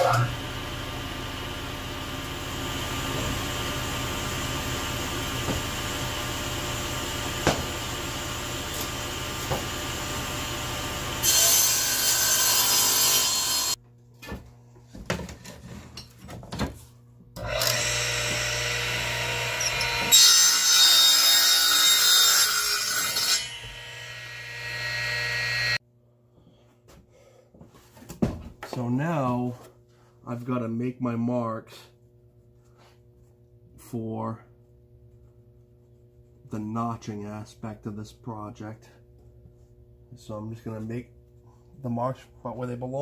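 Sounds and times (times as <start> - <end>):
electric saw cutting plywood: 0.0 - 13.8, 17.4 - 25.8.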